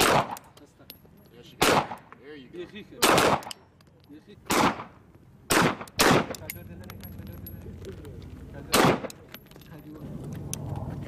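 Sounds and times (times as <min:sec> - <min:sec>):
pistol shots with echo: 0:00.0 - 0:00.5, 0:01.6 - 0:02.1, 0:03.0 - 0:03.6, 0:04.5 - 0:06.5, 0:08.7 - 0:09.2.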